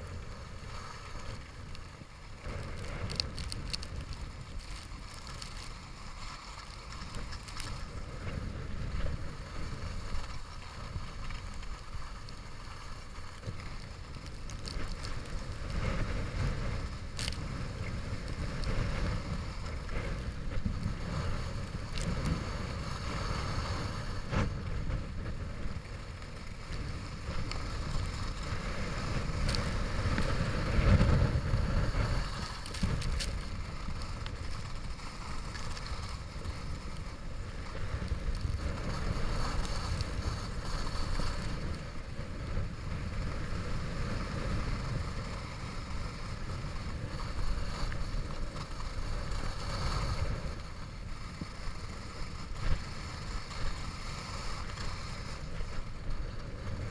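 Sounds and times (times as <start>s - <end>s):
skis scraping over snow: 0.0s - 56.9s
wind buffeting microphone: 0.0s - 56.9s.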